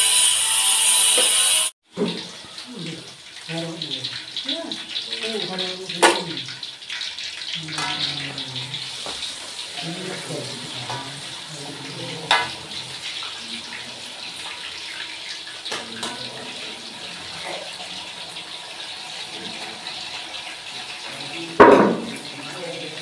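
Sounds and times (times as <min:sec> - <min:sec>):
food sizzling in a wok: 0:00.0 - 0:23.0
utensil scraping and knocking a pan: 0:21.6 - 0:22.2.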